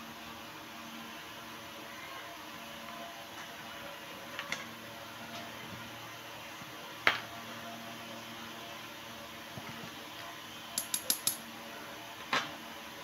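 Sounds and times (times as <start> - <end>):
small metal watch parts clicking: 10.8 - 11.4.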